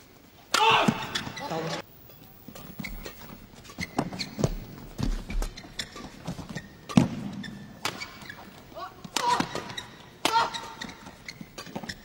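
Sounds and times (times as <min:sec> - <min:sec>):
feet hitting court: 0:02.5 - 0:12.0.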